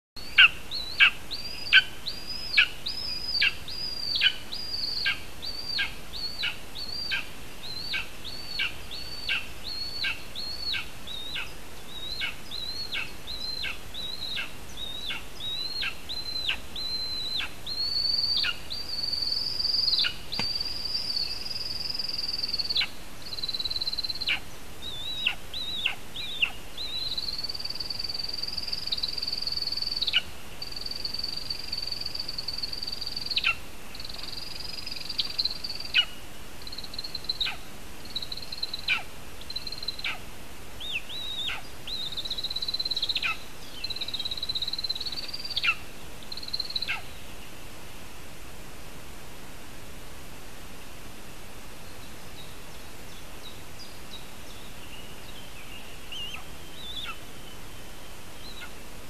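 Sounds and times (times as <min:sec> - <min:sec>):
eagle yelping calls: 0:00.4 - 0:21.4, 0:24.2 - 0:26.6, 0:43.0 - 0:43.4, 0:45.4 - 0:45.8, 0:46.6 - 0:47.1.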